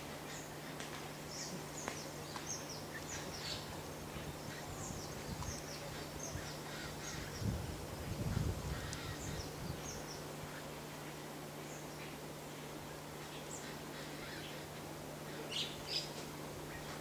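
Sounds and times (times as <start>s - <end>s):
faint steady low hum: 0.0s - 17.0s
wild birds chirping: 0.0s - 17.0s.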